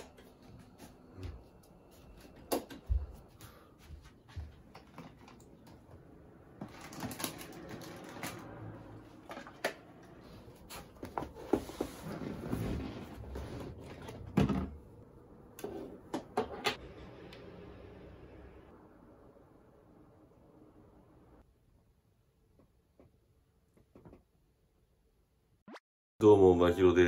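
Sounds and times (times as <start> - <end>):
plastic drawer rummaging: 6.6 - 8.4.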